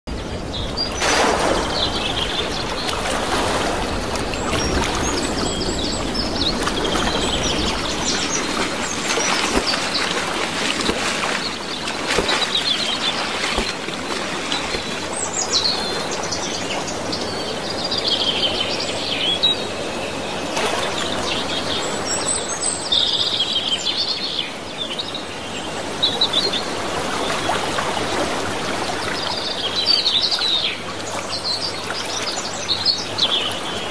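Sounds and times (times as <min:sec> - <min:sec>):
hiss of wind and water: 0:00.1 - 0:23.0
bird splashing into water: 0:01.0 - 0:05.2, 0:06.6 - 0:16.1.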